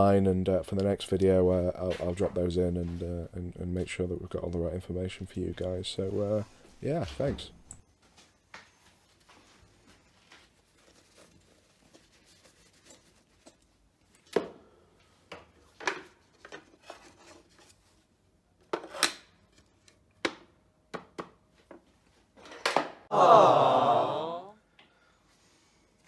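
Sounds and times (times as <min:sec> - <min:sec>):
rubbing: 0:09.0 - 0:13.7.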